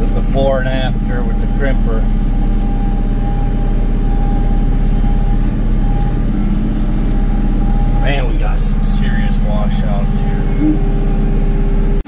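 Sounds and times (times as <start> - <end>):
high whine: 0.0 - 12.0
tractor diesel engine running: 0.0 - 12.0.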